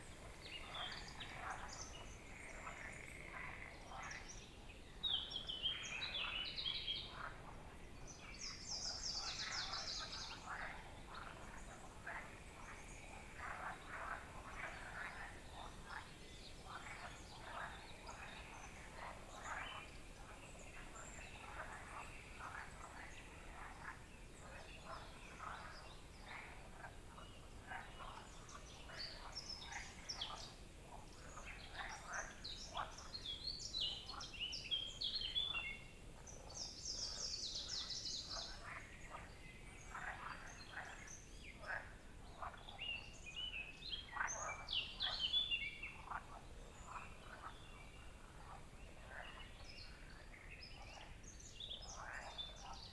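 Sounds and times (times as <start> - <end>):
songbirds chorus: 0.0 - 52.9.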